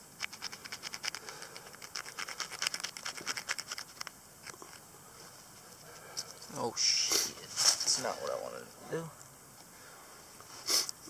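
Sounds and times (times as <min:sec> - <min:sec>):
wooden pick scratching soil: 0:00.2 - 0:04.8.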